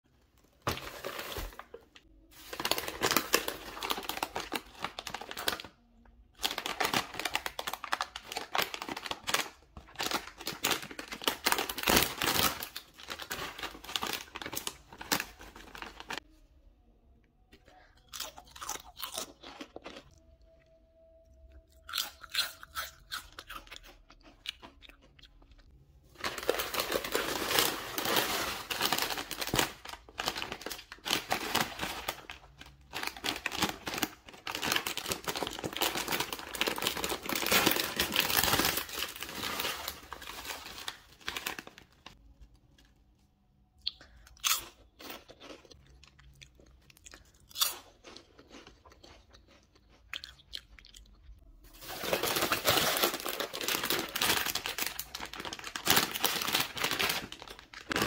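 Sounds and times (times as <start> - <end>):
foil bag crinkling: 0.4 - 5.8, 6.4 - 16.2, 26.1 - 42.2, 51.7 - 58.0
crunching potato chips: 0.5 - 16.2, 17.9 - 20.7, 21.5 - 43.0, 43.8 - 58.0.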